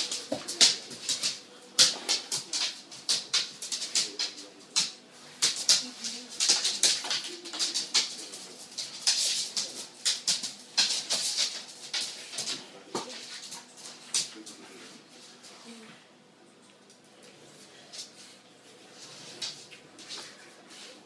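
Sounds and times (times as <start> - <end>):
dog claws skittering on wooden floor: 0.0 - 14.5.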